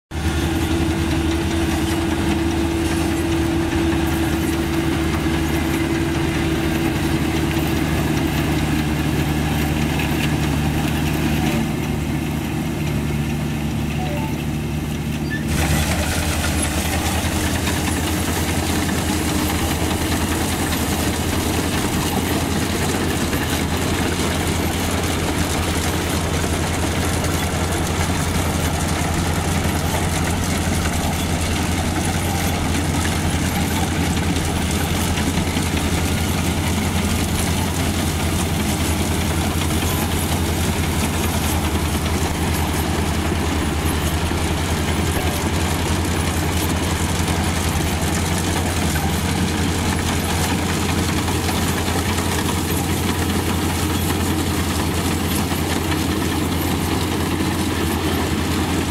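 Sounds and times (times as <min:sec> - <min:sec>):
combine harvester engine droning: 0:00.1 - 0:58.9.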